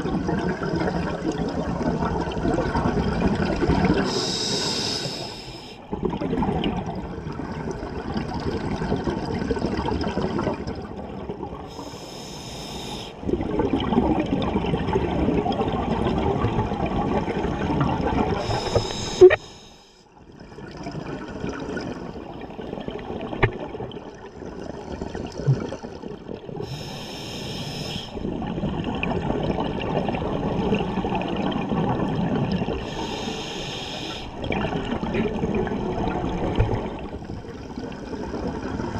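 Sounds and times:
regulator inhalation hiss: 0:04.1 - 0:05.8, 0:11.7 - 0:13.2, 0:18.4 - 0:20.0, 0:26.6 - 0:28.2, 0:32.8 - 0:34.3.

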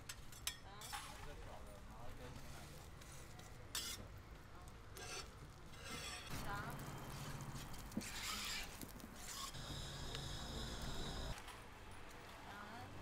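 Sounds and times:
metal spatula scraping griddle: 0:02.4 - 0:04.1, 0:05.0 - 0:06.4, 0:08.0 - 0:09.6.

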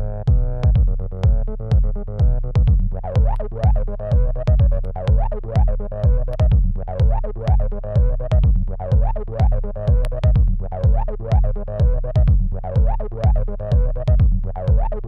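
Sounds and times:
deep kick drum: 0:00.0 - 0:15.0
gliding acid bass line: 0:00.0 - 0:15.0
sharp synth clicks: 0:03.2 - 0:07.7, 0:08.9 - 0:15.0.

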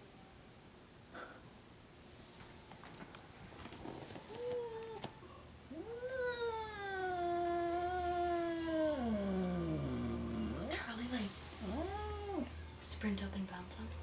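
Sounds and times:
cat yowling: 0:05.7 - 0:10.7, 0:11.6 - 0:12.6.

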